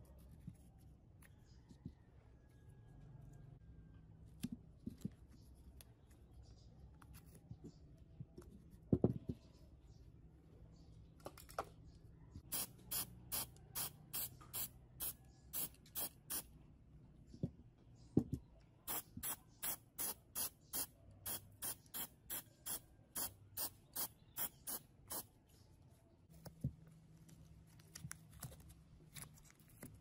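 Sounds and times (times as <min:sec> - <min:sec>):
spray-paint can spurts: 0:12.5 - 0:16.4, 0:18.9 - 0:25.2.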